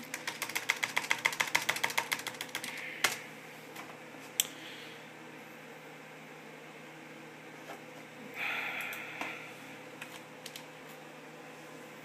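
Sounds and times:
rapid plastic computer clicks: 0:00.0 - 0:03.2.

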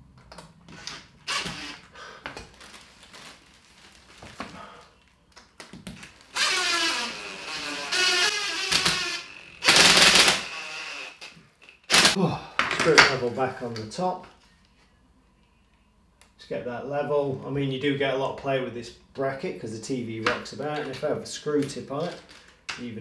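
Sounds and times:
cordless drill driving screws: 0:00.8 - 0:01.9, 0:06.3 - 0:11.3.

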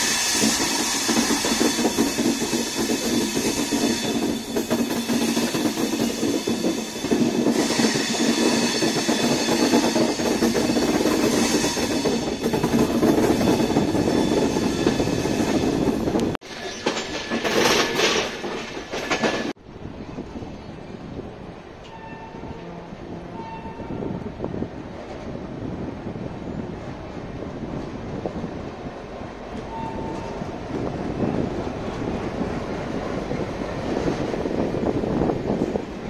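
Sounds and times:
train wheels rumbling and rattling: 0:00.0 - 0:36.0.

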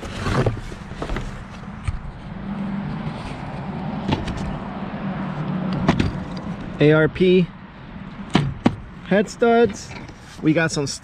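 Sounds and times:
cardboard flaps rustling: 0:00.0 - 0:01.8.

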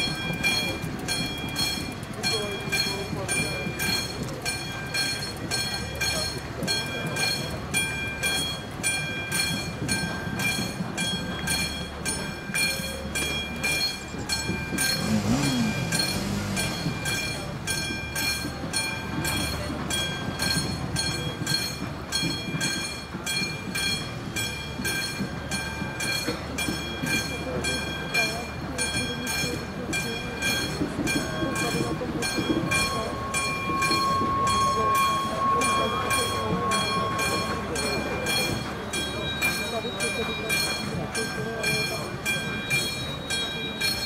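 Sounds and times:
level-crossing warning bell: 0:00.0 - 0:44.0
train rumbling: 0:00.0 - 0:44.0.

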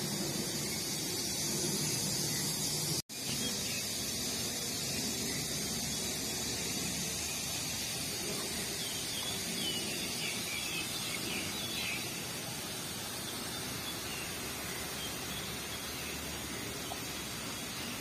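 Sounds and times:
steady rushing outdoor noise: 0:00.0 - 0:18.0.

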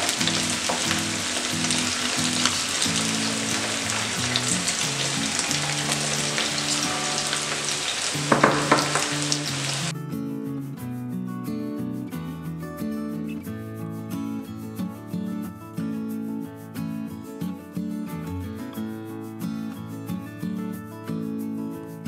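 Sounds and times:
chicken sizzling in hot oil: 0:00.0 - 0:09.9
background music: 0:00.0 - 0:22.0.

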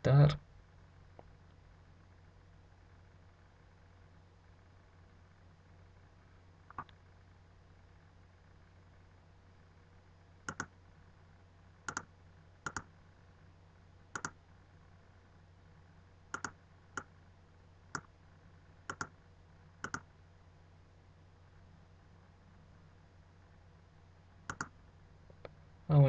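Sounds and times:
faint low hum: 0:00.0 - 0:26.0
computer mouse button clicking: 0:10.5 - 0:10.7, 0:11.9 - 0:12.9, 0:14.2 - 0:14.4, 0:16.3 - 0:17.1, 0:18.9 - 0:19.1, 0:19.8 - 0:20.0, 0:24.5 - 0:24.7.

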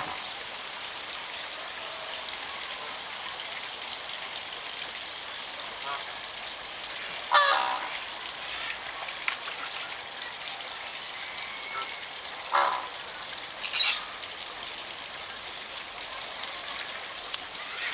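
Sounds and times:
flamingos honking: 0:05.8 - 0:06.1, 0:07.3 - 0:08.8, 0:11.3 - 0:14.2
higher bird call: 0:07.3 - 0:07.9, 0:11.1 - 0:12.9.

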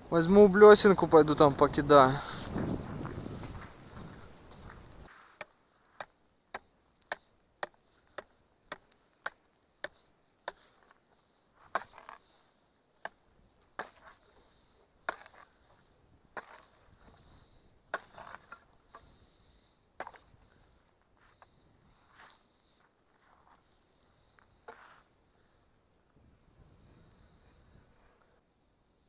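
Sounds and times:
ice chisel striking ice: 0:06.0 - 0:11.0, 0:11.6 - 0:12.4, 0:13.8 - 0:14.4, 0:15.0 - 0:15.8, 0:16.4 - 0:17.2, 0:17.9 - 0:19.1, 0:20.0 - 0:20.4
ice crunching: 0:15.0 - 0:17.2, 0:18.0 - 0:18.7.

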